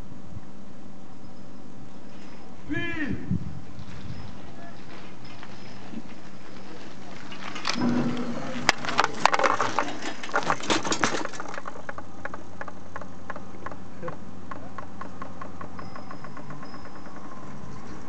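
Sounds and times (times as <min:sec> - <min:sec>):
bicycle clicking on wooden deck: 0:03.7 - 0:18.0
bicycle clattering over wooden bridge: 0:03.8 - 0:18.0.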